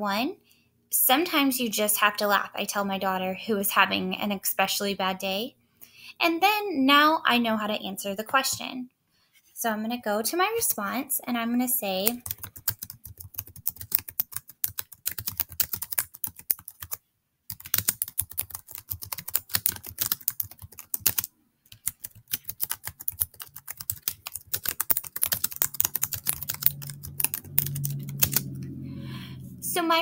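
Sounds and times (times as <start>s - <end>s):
fast typing on keyboard: 12.0s - 28.7s.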